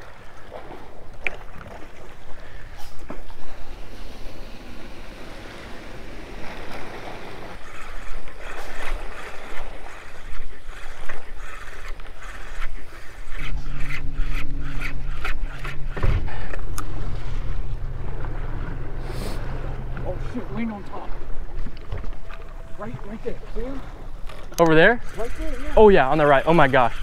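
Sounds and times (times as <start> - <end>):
water around boat: 0.0 - 27.0
wind: 0.0 - 27.0
low hum: 3.3 - 27.0
thump: 16.0 - 16.5.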